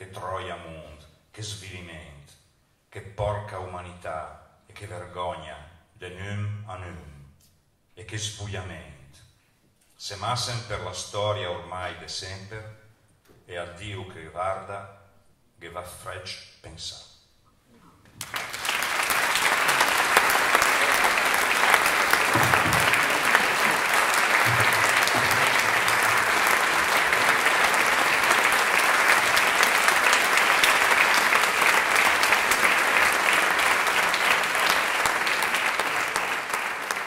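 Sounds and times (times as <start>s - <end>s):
audience applauding: 18.2s - 37.0s.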